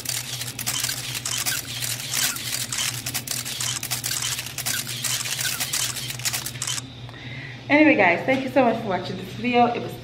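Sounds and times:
camera shutter clicking: 0.0 - 6.8.

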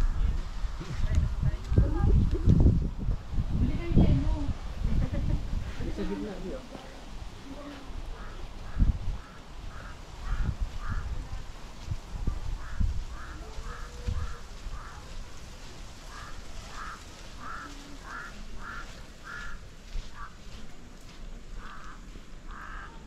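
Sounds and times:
bird calling: 7.6 - 11.2, 12.6 - 15.3, 16.1 - 20.5, 21.6 - 23.0.

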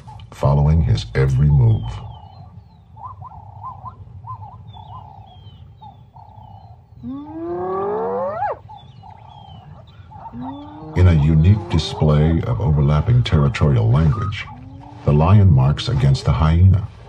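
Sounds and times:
faint bird chirps: 0.0 - 15.6
hyena whoop: 7.0 - 8.6.

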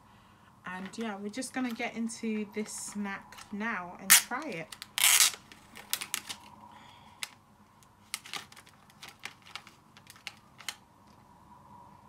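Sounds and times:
plastic container clicking and crackling: 4.1 - 6.5, 8.0 - 11.2.

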